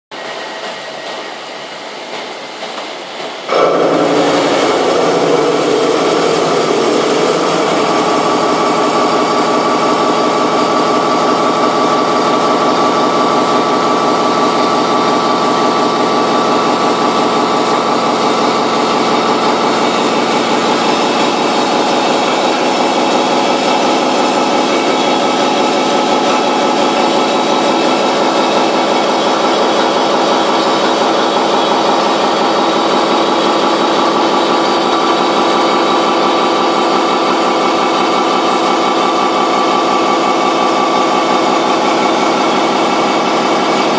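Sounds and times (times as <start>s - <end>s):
milling cutter whining and grinding: 3.5s - 29.5s.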